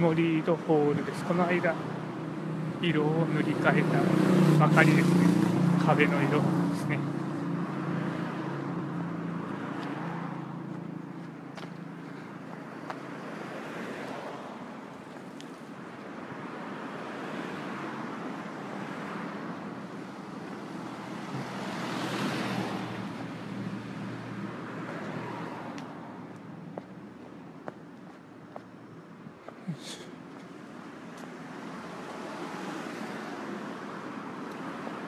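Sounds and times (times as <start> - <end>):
cars passing: 0.0 - 35.0
vehicle engine hum: 14.9 - 35.0.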